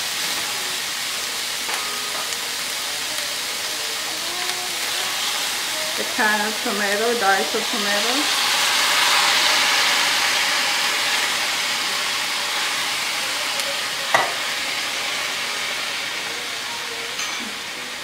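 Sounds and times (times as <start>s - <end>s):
tomatoes sizzling in hot oil: 0.0s - 18.0s.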